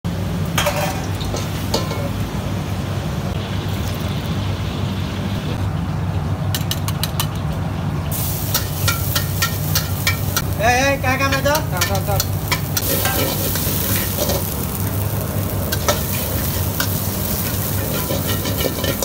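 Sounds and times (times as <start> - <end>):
wok burner roar: 0.1 - 19.0
garlic sizzling in hot oil: 8.1 - 19.0.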